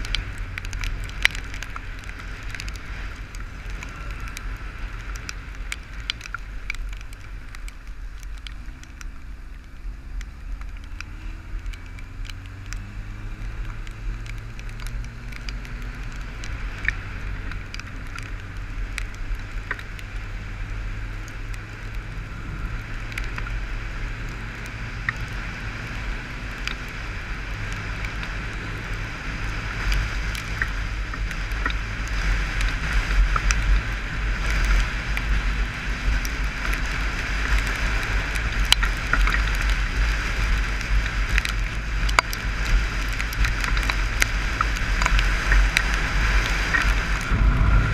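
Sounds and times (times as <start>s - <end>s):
raindrops ticking on camera: 0.0s - 47.9s
motorcycle engine: 8.6s - 47.9s
wind rushing: 46.0s - 47.9s.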